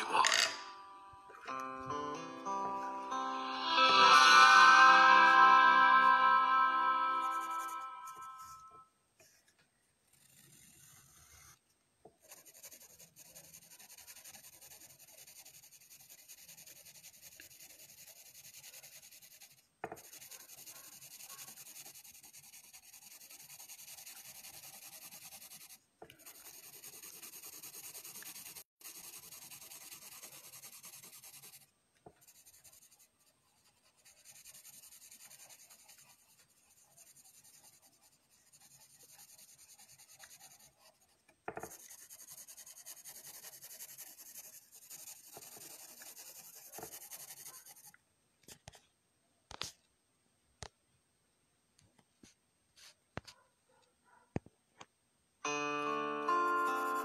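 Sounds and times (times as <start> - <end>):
pencil scratching on paper: 7.2 - 48.0.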